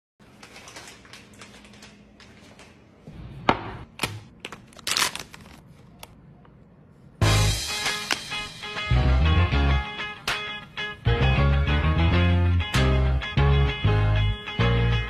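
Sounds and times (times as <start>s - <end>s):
foil bag crinkling: 0.2s - 2.7s, 4.4s - 6.1s.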